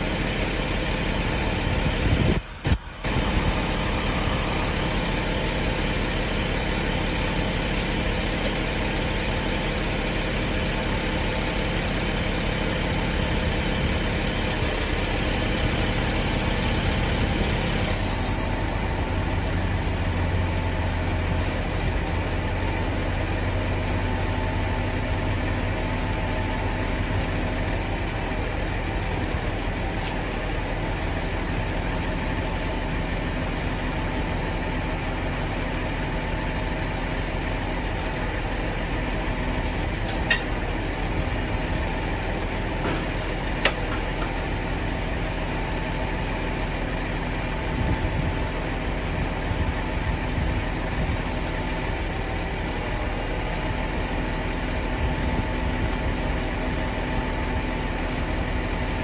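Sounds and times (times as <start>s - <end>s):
diesel truck engine running: 0.0s - 59.0s
hydraulics moving loading deck: 0.1s - 59.0s
short air hiss: 17.8s - 18.8s.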